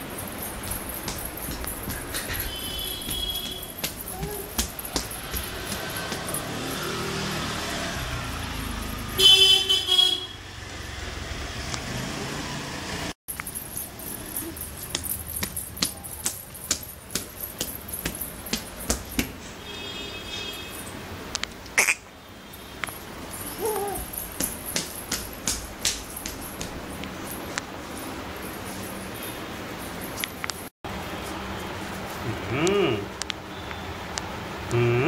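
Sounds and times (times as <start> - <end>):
street traffic passing: 0.0 - 35.0
vehicle horn tooting: 2.4 - 3.7, 9.2 - 10.4.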